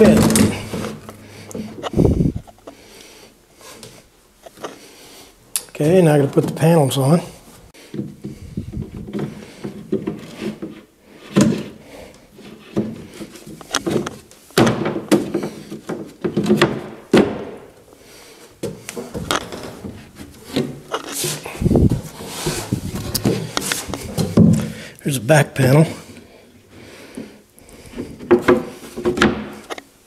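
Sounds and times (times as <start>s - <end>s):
wood scraping on wood: 0.0s - 5.0s, 7.8s - 14.3s, 18.6s - 24.8s.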